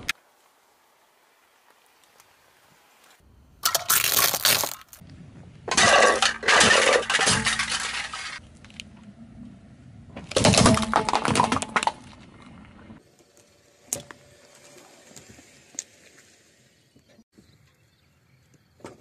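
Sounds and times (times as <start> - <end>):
tyre crushing objects: 3.6 - 5.0.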